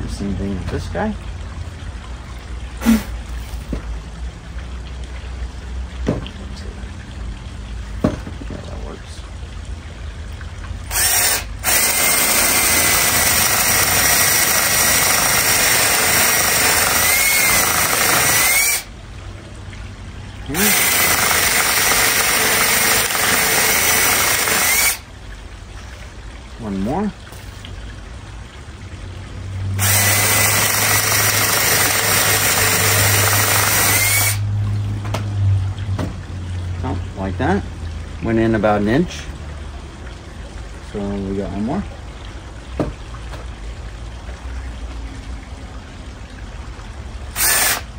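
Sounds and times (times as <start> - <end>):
cordless drill boring into log: 10.9 - 18.9, 20.6 - 25.1, 29.8 - 34.4, 47.4 - 47.9.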